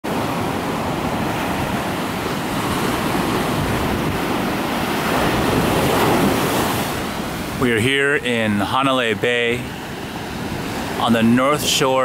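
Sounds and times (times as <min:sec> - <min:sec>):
ocean surf breaking on beach: 0:00.0 - 0:12.0
wind on microphone: 0:00.1 - 0:07.8.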